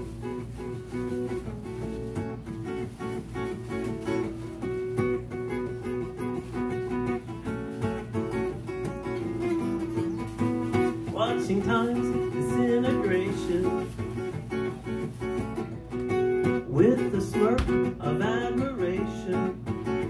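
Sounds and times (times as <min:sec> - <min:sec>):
acoustic guitar strumming chords: 0:00.0 - 0:20.0
person singing: 0:11.1 - 0:13.9, 0:16.6 - 0:19.7.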